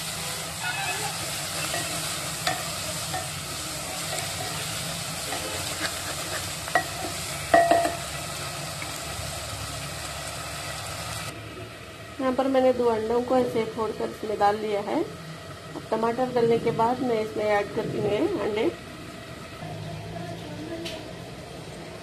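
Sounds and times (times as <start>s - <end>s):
sauce sizzling in a pan: 0.0s - 17.6s.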